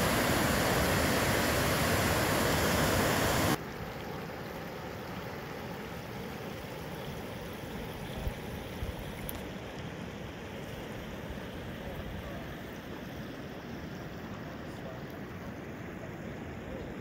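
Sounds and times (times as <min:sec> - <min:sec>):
river rapids rushing: 0:00.0 - 0:03.6
steady hiss: 0:00.0 - 0:17.0.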